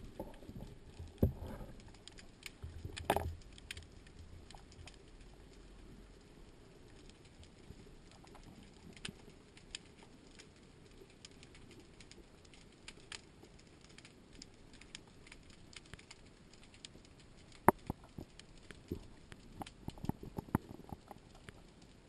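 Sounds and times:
sharp underwater clicks and crackles: 0:00.0 - 0:22.0.

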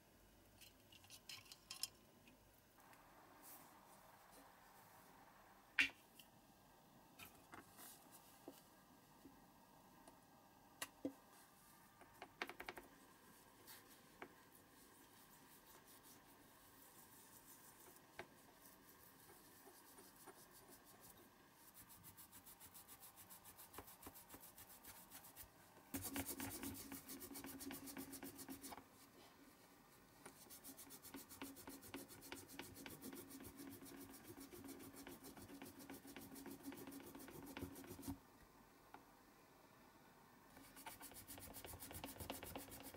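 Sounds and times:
cloth rubbing on metal toy: 0:13.0 - 0:28.8, 0:30.3 - 0:38.2, 0:40.6 - 0:42.9.

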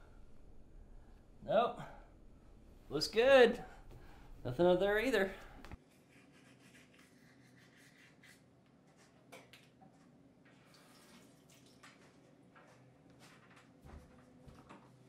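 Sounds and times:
faint toothbrushing strokes: 0:05.9 - 0:09.2.

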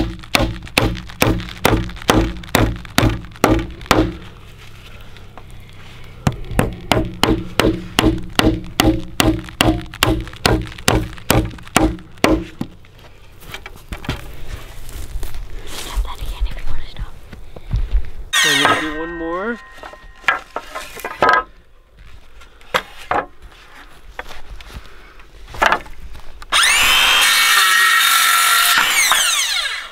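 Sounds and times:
hammer driving nails into wood: 0:00.0 - 0:04.2, 0:06.6 - 0:12.7.

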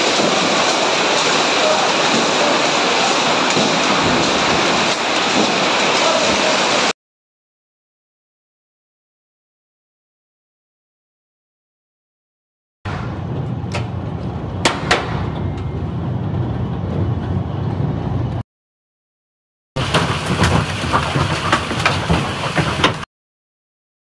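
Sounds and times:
hailstones cracking: 0:00.0 - 0:06.9, 0:19.8 - 0:23.1
heavy rain hiss: 0:00.0 - 0:06.9.

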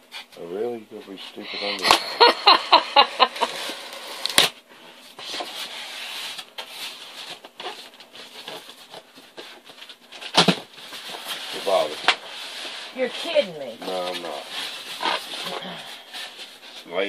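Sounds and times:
styrofoam squeaking: 0:05.2 - 0:17.0.

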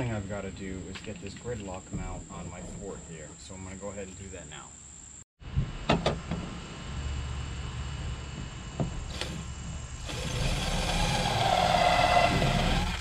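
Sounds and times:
cordless drill whining: 0:09.1 - 0:13.0.

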